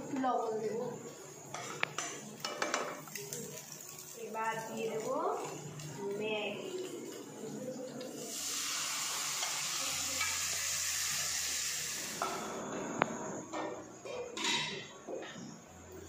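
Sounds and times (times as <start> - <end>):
noodles sizzling in oil: 0.0 - 12.7.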